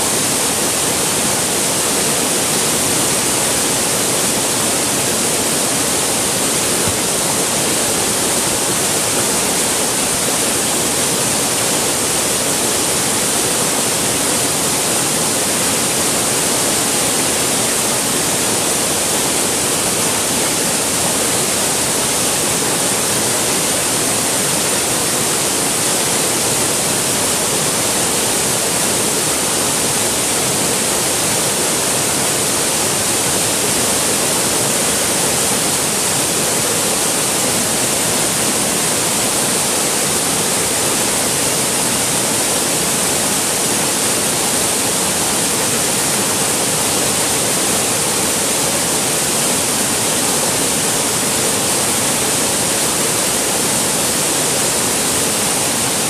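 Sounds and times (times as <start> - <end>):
stream rushing over boulders: 0.0 - 56.0.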